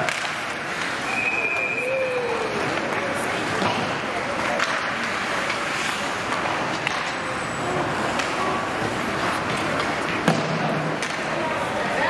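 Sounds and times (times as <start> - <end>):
arena noise: 0.0 - 12.0
hockey sticks and puck clacking: 0.0 - 12.0.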